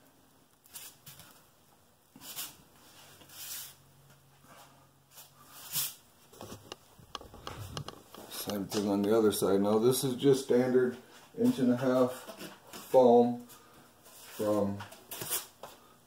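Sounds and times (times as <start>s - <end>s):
light clicks and knocks: 6.4s - 8.9s.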